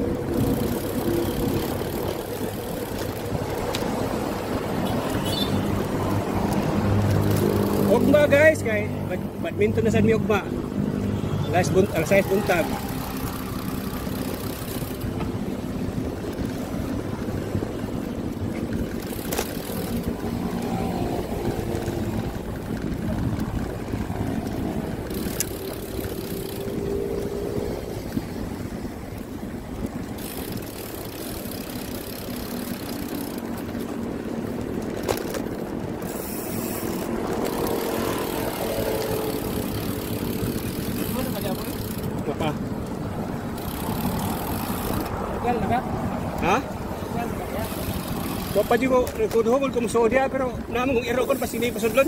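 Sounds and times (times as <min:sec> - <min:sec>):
traffic hum: 0:00.0 - 0:52.0
wind buffeting microphone: 0:11.8 - 0:49.8.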